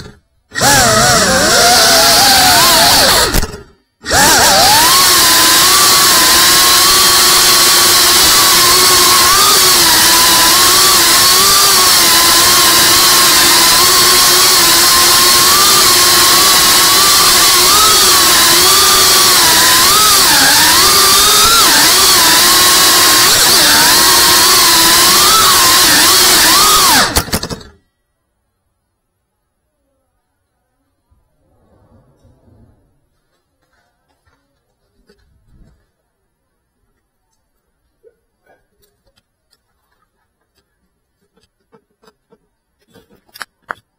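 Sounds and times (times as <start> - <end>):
drone motors and propellers whining: 0.0 - 27.8.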